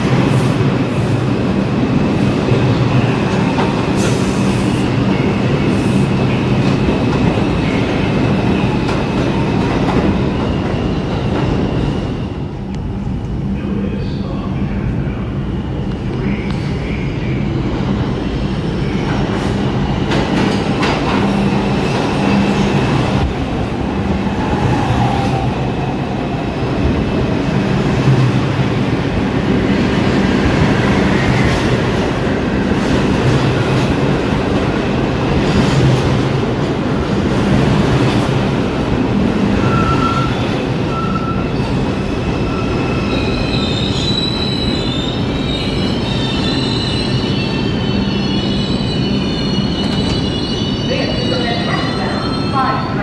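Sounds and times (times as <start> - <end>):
subway train rumbling: 0.0 - 53.0
train brakes squealing: 39.6 - 41.8, 42.4 - 53.0.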